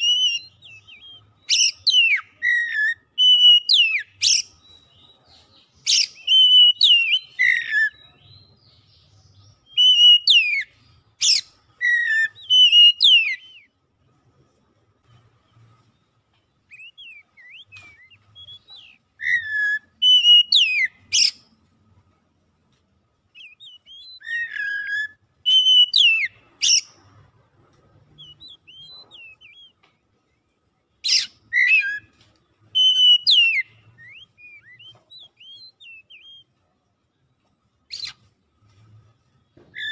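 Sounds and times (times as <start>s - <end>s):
bird singing whistled phrases: 0.0s - 5.1s, 5.8s - 8.7s, 9.6s - 13.7s, 16.7s - 21.4s, 23.3s - 26.9s, 28.1s - 29.8s, 31.0s - 36.5s.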